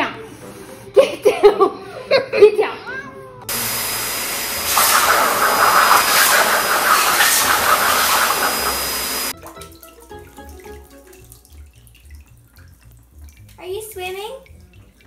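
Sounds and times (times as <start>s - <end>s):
blow dryer whining: 3.5s - 9.3s.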